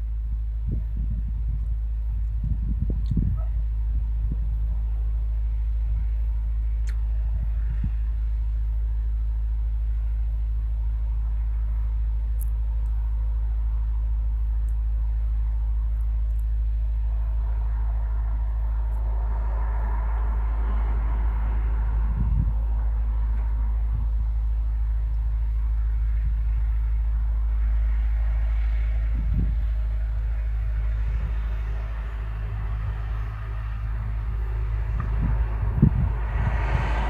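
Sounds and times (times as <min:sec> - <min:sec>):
vehicle engine idling: 0:00.0 - 0:37.0
wash of noise: 0:15.4 - 0:37.0.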